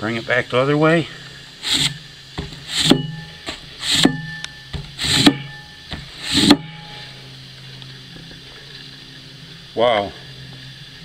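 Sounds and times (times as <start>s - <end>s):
axe blade scraping across cardboard: 1.6s - 7.0s.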